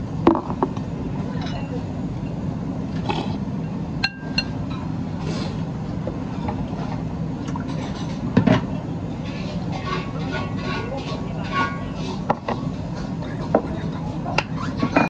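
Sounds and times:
low steady hum: 0.0s - 15.0s
tableware clinking: 4.0s - 4.9s, 9.2s - 12.6s.

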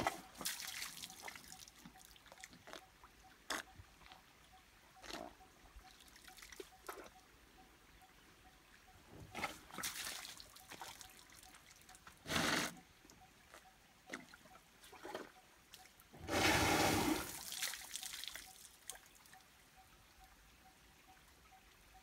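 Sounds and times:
elephant squirting water splashing: 16.2s - 18.4s.

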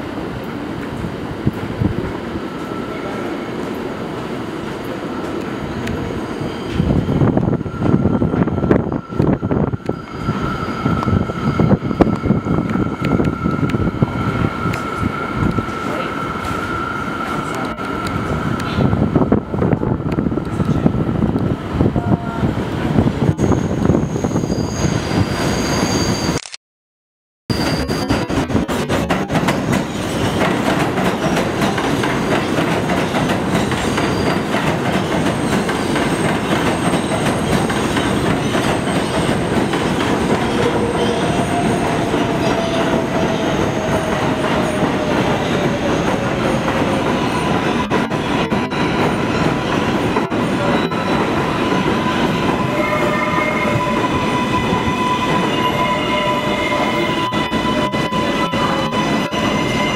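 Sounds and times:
steel wheels rumbling on rail: 0.0s - 26.4s, 27.5s - 59.9s
high-pitched train squeal: 2.5s - 3.7s, 5.0s - 19.4s, 23.2s - 26.4s, 27.5s - 59.9s
train whine falling in pitch: 35.2s - 59.9s.

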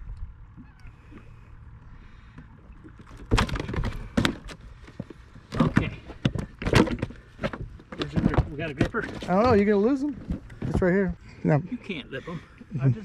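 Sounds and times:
fish splashing and thrashing: 0.3s - 10.8s
knocks on a boat: 5.5s - 9.6s.

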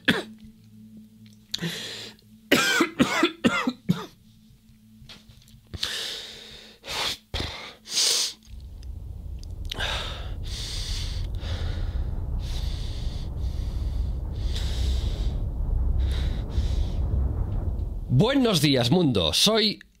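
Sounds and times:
low rumble: 8.5s - 19.7s.

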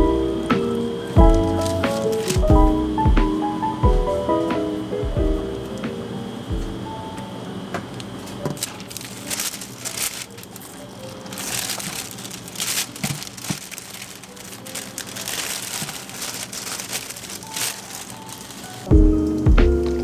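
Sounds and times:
soft background music: 0.0s - 20.0s
plastic bag crinkling: 0.7s - 2.5s, 8.0s - 18.9s.

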